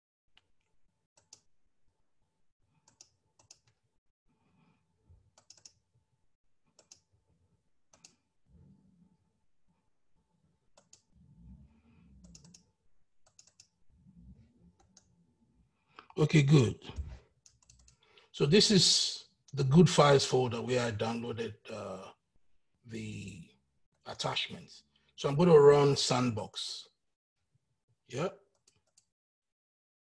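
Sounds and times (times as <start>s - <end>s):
mouse and keyboard clicks: 2.8s - 3.8s, 5.4s - 5.8s, 12.2s - 12.6s.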